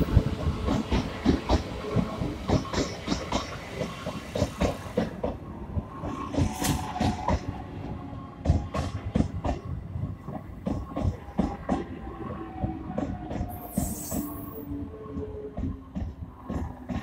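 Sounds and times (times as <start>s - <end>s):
train wheels clacking over rail joints: 0.2s - 5.4s, 8.4s - 11.9s.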